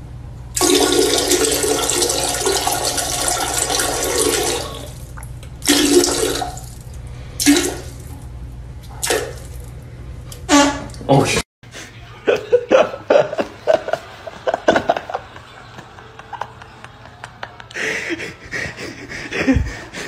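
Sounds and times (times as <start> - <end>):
steady low hum: 0.0 - 20.0
toilet flushing: 0.5 - 8.2, 8.9 - 9.7.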